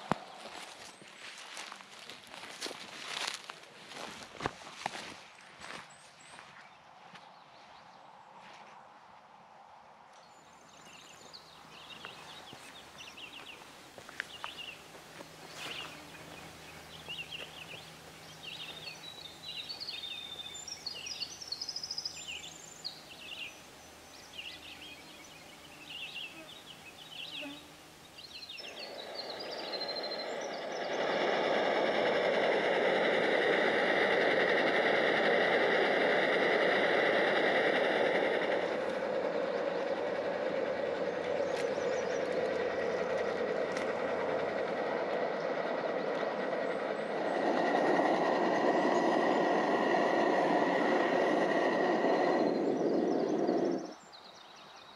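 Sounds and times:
camp stove burner hissing: 11.8s - 54.0s
short chirping calls: 14.3s - 54.9s.

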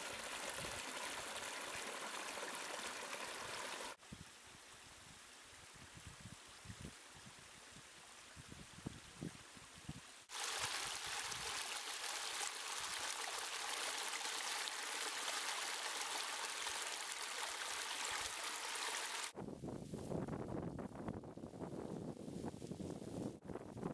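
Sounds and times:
water rushing over rock: 0.0s - 4.0s, 10.3s - 19.3s
faint hiss: 0.0s - 20.2s.

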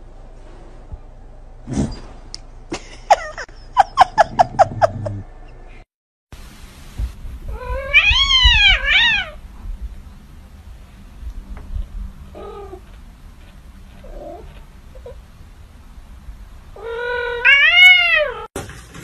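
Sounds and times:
cats meowing: 7.5s - 9.4s, 16.8s - 18.5s.

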